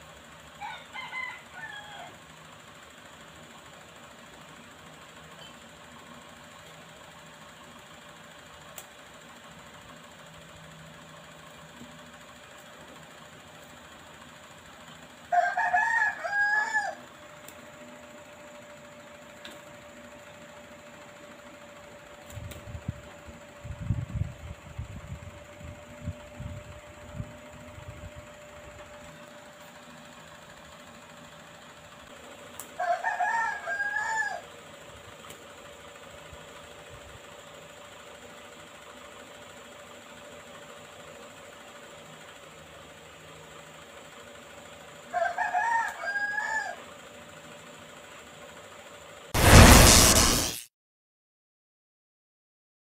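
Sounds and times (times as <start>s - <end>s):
rooster crowing: 0.6s - 2.2s, 15.3s - 17.1s, 32.8s - 34.5s, 45.1s - 46.8s.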